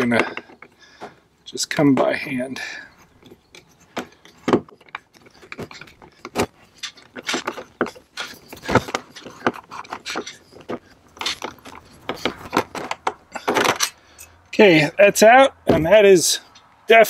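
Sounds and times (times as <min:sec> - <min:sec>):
small metal parts clicking and rattling: 0:02.8 - 0:14.6.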